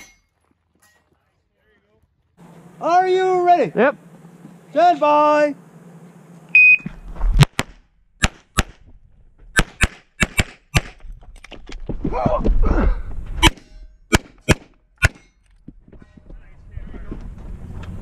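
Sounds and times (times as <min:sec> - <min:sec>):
shot timer beep: 0:06.6 - 0:06.9
pistol shots: 0:09.6 - 0:11.0, 0:13.4 - 0:15.3.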